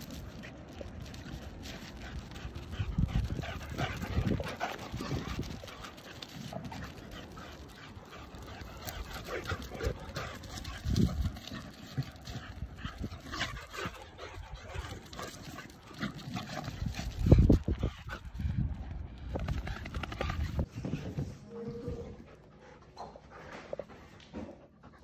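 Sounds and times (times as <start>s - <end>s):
paws scuffing on dirt: 0.0s - 18.5s.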